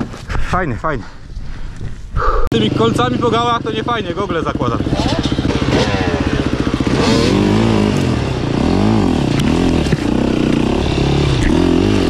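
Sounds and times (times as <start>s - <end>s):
motorcycle engine revving: 2.5s - 12.0s.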